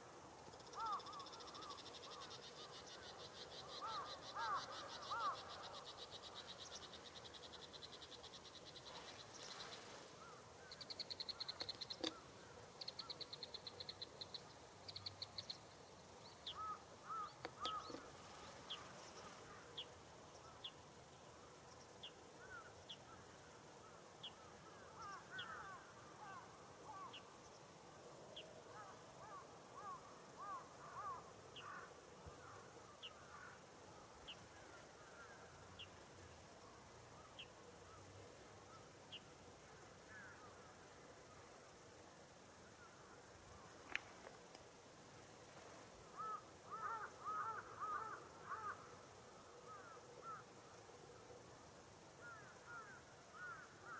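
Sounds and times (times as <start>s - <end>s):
high insect-like chirping: 0.0s - 53.9s
distant crows cawing: 0.7s - 2.4s, 3.6s - 5.9s, 16.5s - 18.1s, 24.4s - 27.2s, 28.7s - 33.6s, 46.1s - 49.0s, 49.6s - 50.5s, 52.2s - 53.9s.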